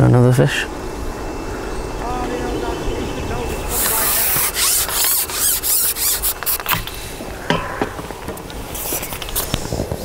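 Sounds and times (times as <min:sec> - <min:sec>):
fishing rod rubbing and scraping: 0:03.5 - 0:07.0, 0:08.6 - 0:10.0.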